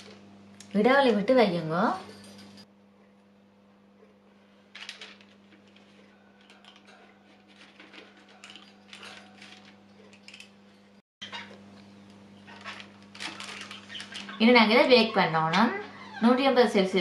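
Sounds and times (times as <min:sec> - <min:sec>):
metal scoop clicking and scraping: 0:06.4 - 0:10.6.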